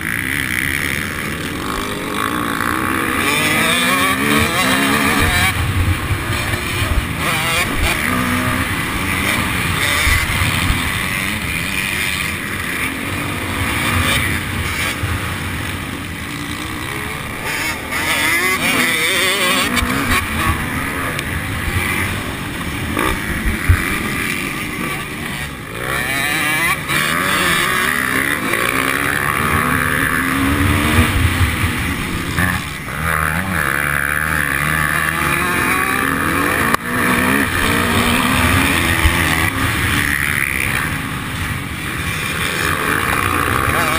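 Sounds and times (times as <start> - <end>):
dirt bike engine revving: 0.0 - 43.9
other dirt bike engines: 0.0 - 43.9.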